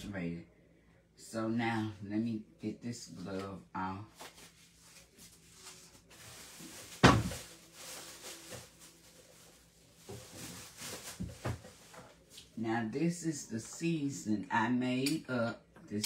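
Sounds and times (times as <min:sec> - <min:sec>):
glove rustling: 0:04.2 - 0:12.4
kitchen cupboard banging: 0:07.0 - 0:07.4.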